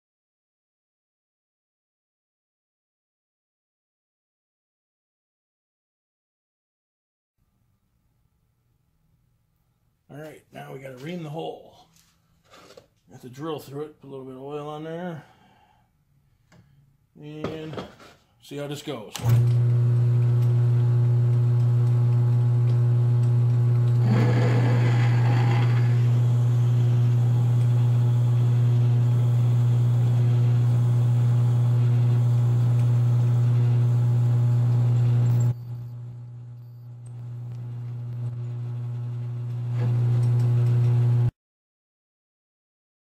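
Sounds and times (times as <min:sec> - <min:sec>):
lathe electric hum: 0:19.2 - 0:41.3
metal cutting noise: 0:21.9 - 0:35.6.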